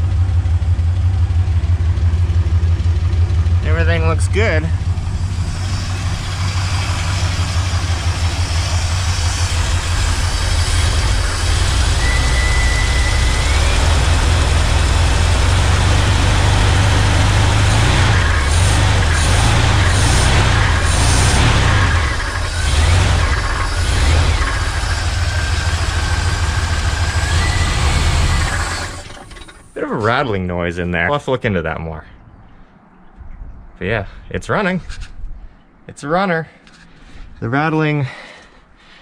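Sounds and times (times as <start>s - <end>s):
engine running: 0.0s - 30.4s
engine rattling: 0.0s - 30.5s.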